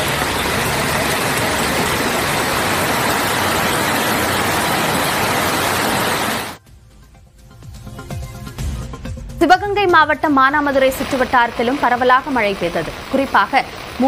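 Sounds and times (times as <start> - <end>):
heavy rain on a wet road: 0.0 - 6.6, 11.0 - 14.0.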